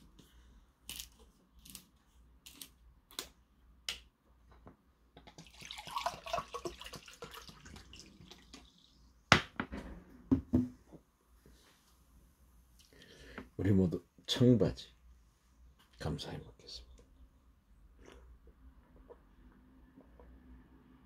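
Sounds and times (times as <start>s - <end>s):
liquid gurgling into a mug: 5.3s - 8.9s
bottle knocking on table: 10.3s - 10.8s.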